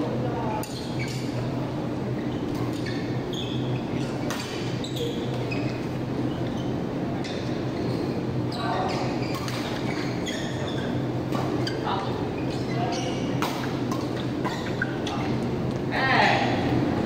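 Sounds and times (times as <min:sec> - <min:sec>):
steady low hum: 0:00.0 - 0:17.0
shoes squeaking on court floor: 0:00.5 - 0:15.9
rackets striking shuttlecock: 0:04.1 - 0:05.5, 0:13.3 - 0:14.6.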